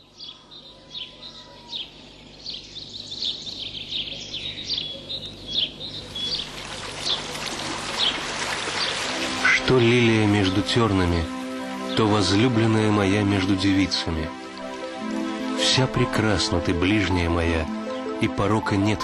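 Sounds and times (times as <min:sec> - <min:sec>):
small birds chirping: 0:00.0 - 0:19.0
running water rushing: 0:06.1 - 0:18.2.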